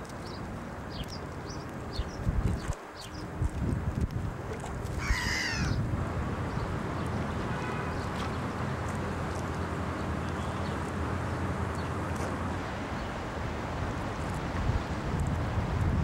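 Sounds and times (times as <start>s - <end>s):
wind noise: 1.8s - 7.9s, 12.6s - 16.0s
gull call: 5.0s - 5.8s.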